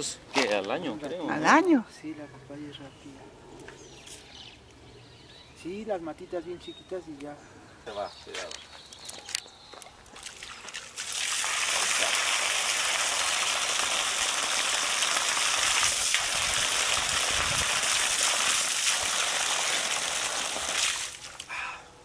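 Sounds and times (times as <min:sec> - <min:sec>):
hose water spraying onto gravel: 0:10.4 - 0:21.5.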